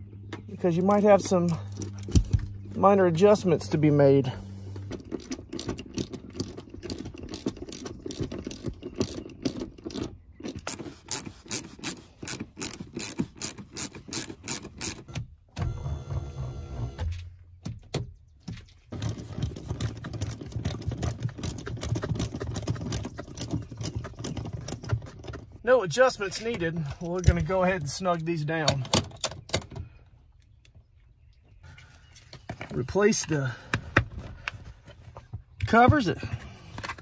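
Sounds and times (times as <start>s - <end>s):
ratchet wrench clicking: 10.7s - 15.0s.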